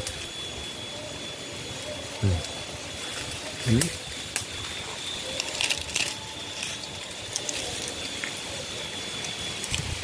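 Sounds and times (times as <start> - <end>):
bamboo leaves rustling: 2.2 - 10.0.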